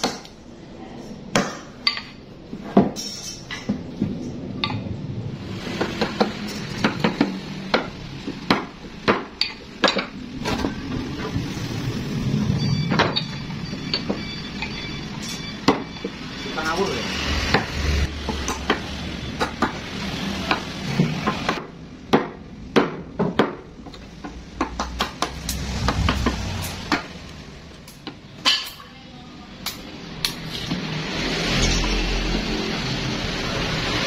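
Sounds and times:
hammer striking a chisel: 0:06.0 - 0:10.2, 0:12.9 - 0:16.2, 0:20.5 - 0:26.3.

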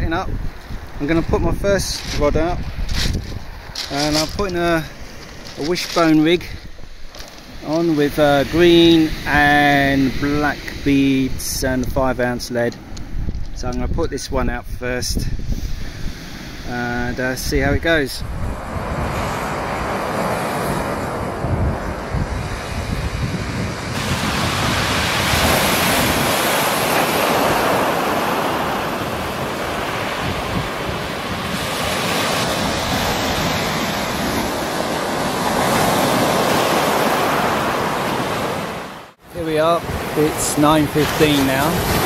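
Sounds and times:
wind buffeting microphone: 0:00.0 - 0:38.6, 0:39.3 - 0:42.0
waves breaking on shingle: 0:01.8 - 0:07.9, 0:24.0 - 0:38.7, 0:39.9 - 0:42.0.

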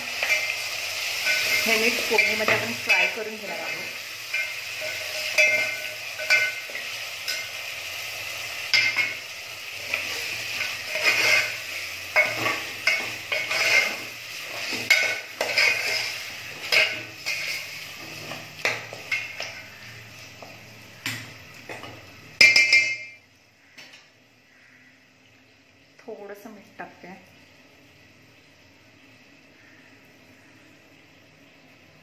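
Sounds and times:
meat sizzling in hot oil: 0:00.0 - 0:23.1
spoon scraping a metal pot: 0:01.2 - 0:07.5, 0:09.8 - 0:19.7.

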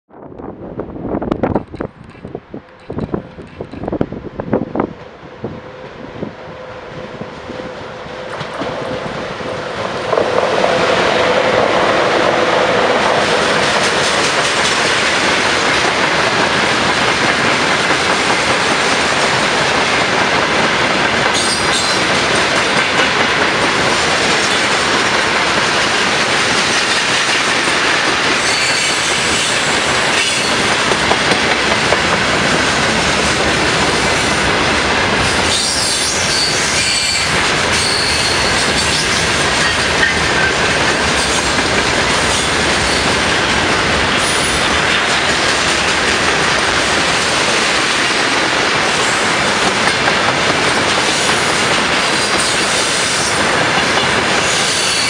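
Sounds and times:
freight train wheels rumbling: 0:00.1 - 0:55.0
high wheel squeals: 0:35.5 - 0:39.1.

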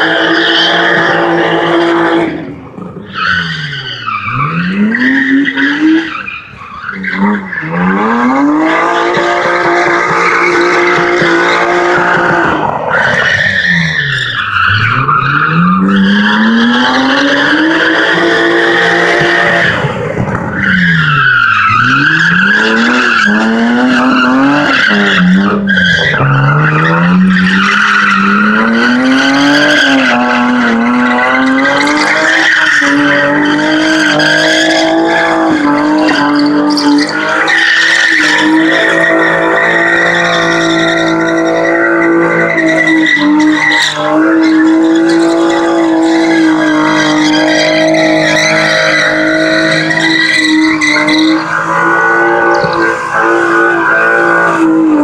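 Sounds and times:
car engine revving hard: 0:07.0 - 0:55.0
tyres squealing: 0:31.4 - 0:54.5.

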